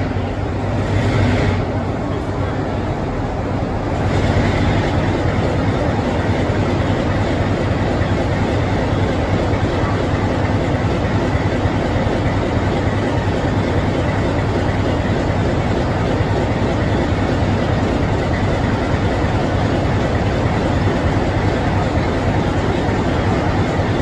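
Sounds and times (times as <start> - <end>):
diesel locomotive engine humming: 0.0 - 24.0.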